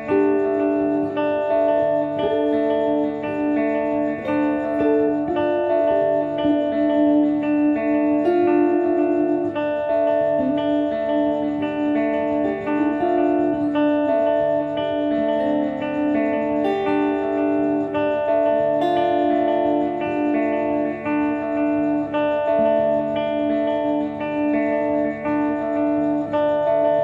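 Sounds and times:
two guitars playing: 0.0 - 27.0.

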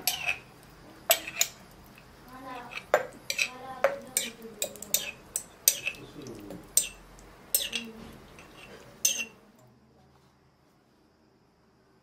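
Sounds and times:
metal fork clinking on glass jar: 7.6 - 9.3.

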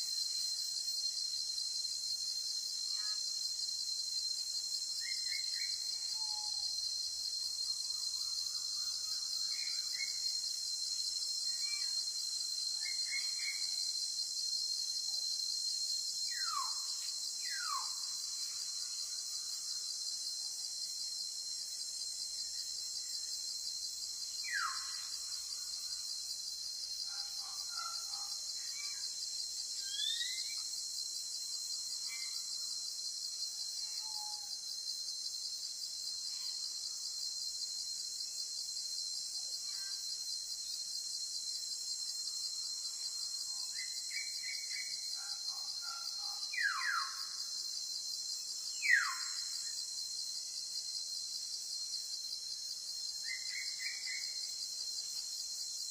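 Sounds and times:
high-pitched insect chorus: 0.0 - 55.9.

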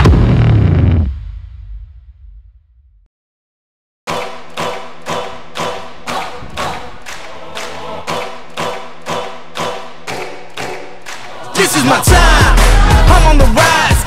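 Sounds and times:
background music with steady beat: 4.1 - 14.0.

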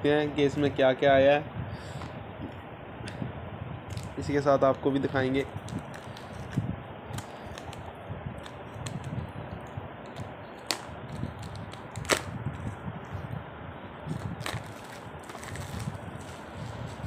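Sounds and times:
plastic insert snapping: 10.1 - 12.3
cardboard box clicks and rustles: 14.4 - 16.4.

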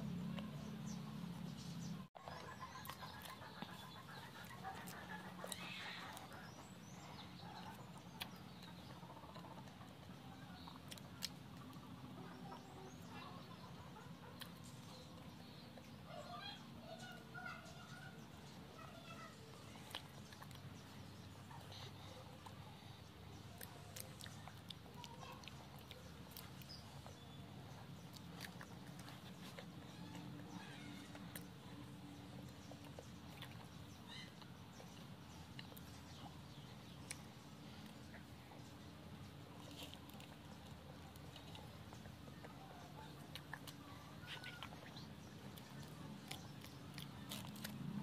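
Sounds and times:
person chewing: 7.4 - 12.6, 19.4 - 48.0.

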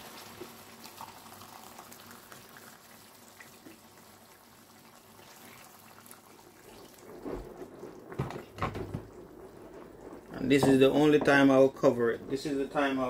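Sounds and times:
water splashing into pot: 0.0 - 9.3.

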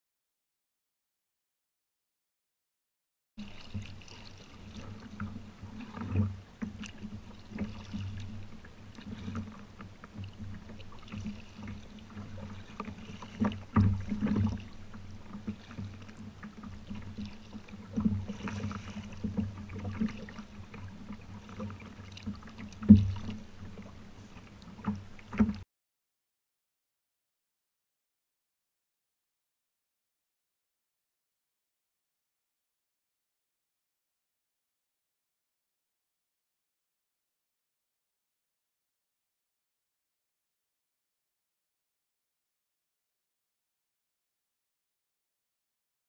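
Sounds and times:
water against kayak hull: 3.4 - 25.7.

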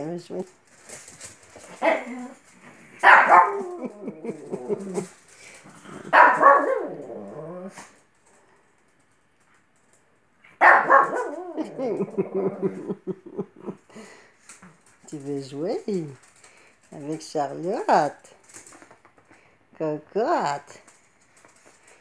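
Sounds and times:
puppy barking: 1.8 - 2.2, 3.0 - 3.8, 6.1 - 7.0, 10.6 - 11.8.

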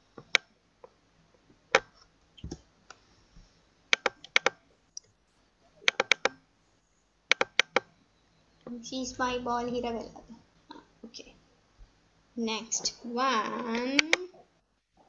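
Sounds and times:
computer mouse clicks: 3.9 - 5.1, 5.8 - 6.4, 7.3 - 7.9, 13.7 - 14.3
keyboard clicks: 3.9 - 5.1, 5.8 - 6.4, 7.3 - 7.9, 13.7 - 14.2.

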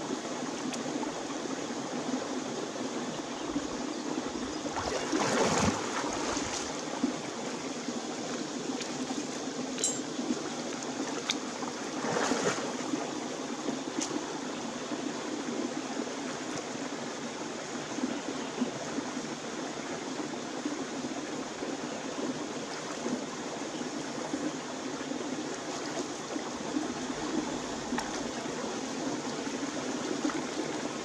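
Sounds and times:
stream running over rocks: 0.0 - 31.0
water splashing from wading: 4.6 - 13.2, 25.5 - 31.0.

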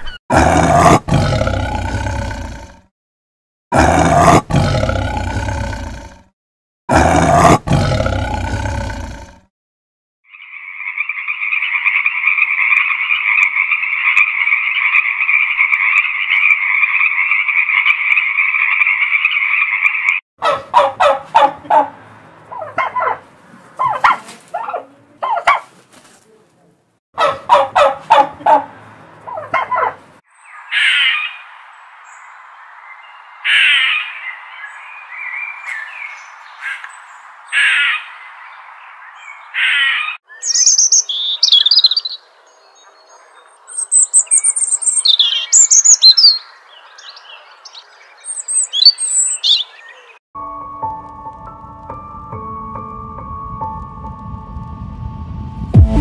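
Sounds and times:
sharp bird calls: 10.2 - 21.8, 29.2 - 50.2
turkey gobbling: 20.4 - 21.9, 22.5 - 23.2, 23.8 - 25.7, 27.2 - 30.0
high bird chirps: 33.0 - 50.2.

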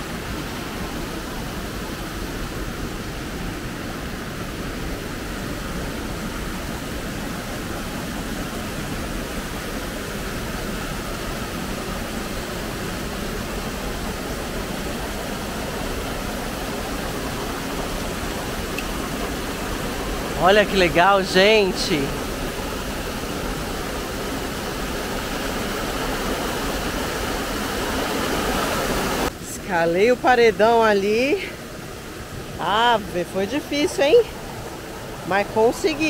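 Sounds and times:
waterfall rushing over boulders: 0.0 - 36.0.

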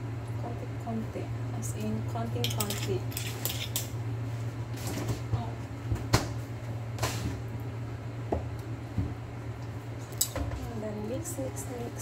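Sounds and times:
steady low hum: 0.0 - 12.0
kitchen containers and utensils clicking: 2.4 - 3.9.

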